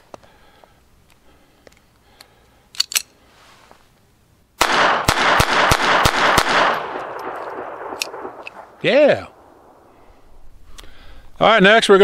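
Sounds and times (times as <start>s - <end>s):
pistol clicks: 1.7s - 3.2s, 4.6s - 8.6s
pistol shots with echo: 4.6s - 10.0s.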